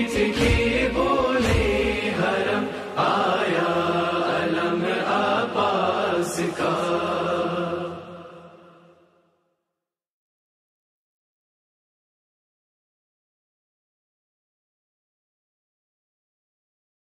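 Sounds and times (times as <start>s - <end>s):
voices chanting a lament: 0.0s - 9.2s.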